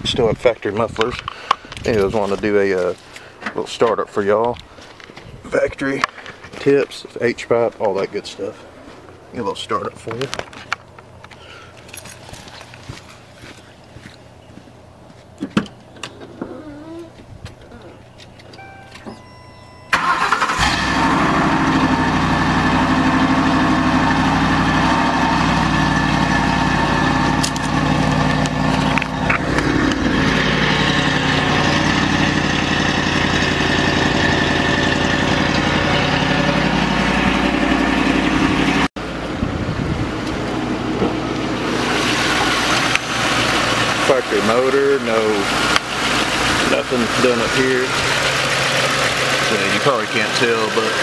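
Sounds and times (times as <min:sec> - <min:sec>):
car engine starting and idling: 0:18.6 - 0:51.0.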